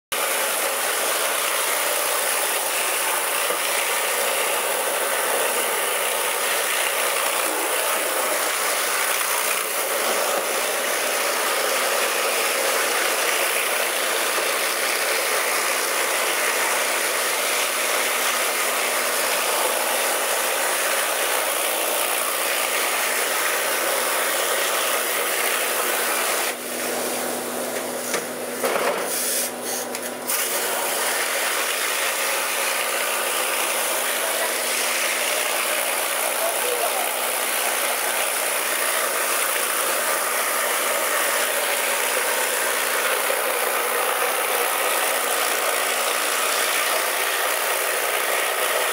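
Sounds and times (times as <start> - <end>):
pressure washer spray hissing: 29.0 - 37.8.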